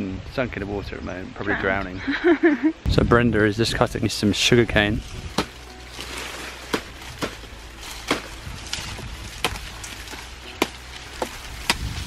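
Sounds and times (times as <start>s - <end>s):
blade chopping sugar cane: 5.3s - 12.0s.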